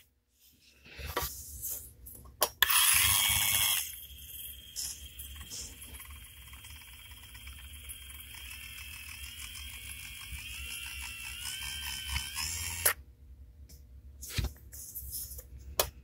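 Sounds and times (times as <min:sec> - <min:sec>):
dental handpiece whining: 0:02.6 - 0:13.0.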